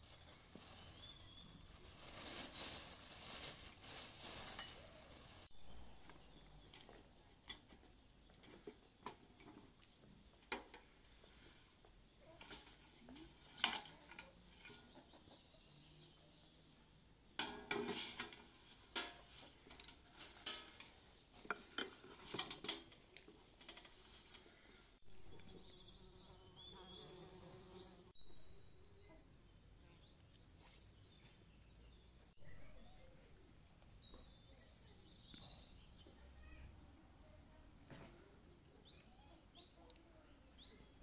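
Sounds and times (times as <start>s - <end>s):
metal grill rack and tray clinking: 19.0s - 20.9s.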